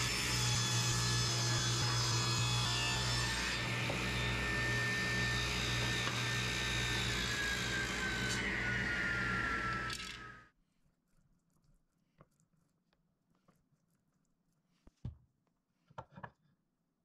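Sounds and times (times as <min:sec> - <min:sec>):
table saw cutting wood: 0:00.0 - 0:10.5.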